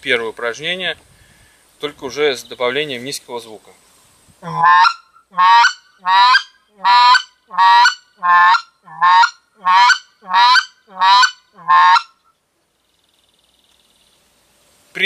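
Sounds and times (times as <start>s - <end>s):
goose call clucks: 4.4s - 12.2s.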